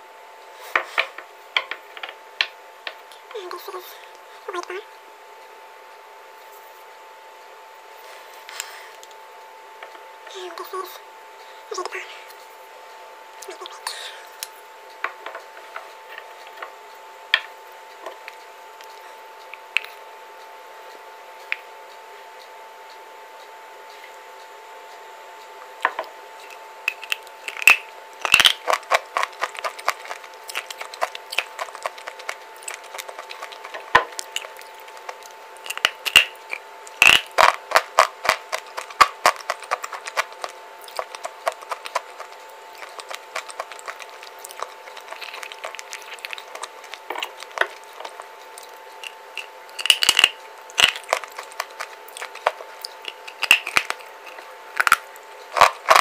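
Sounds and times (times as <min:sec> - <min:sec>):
faint steady hum: 0:00.0 - 0:56.0
crunchy chewing: 0:26.0 - 0:56.0.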